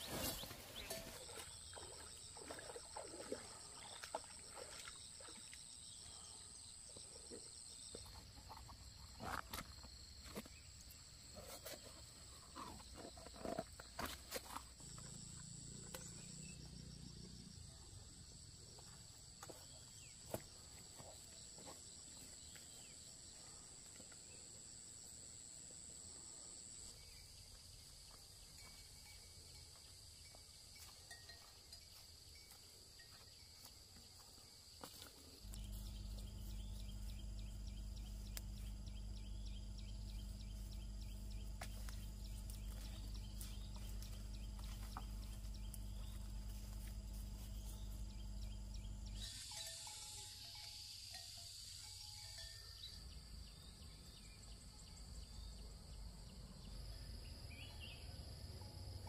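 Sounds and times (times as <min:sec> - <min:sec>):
high-pitched insect drone: 0:35.4 - 0:53.4.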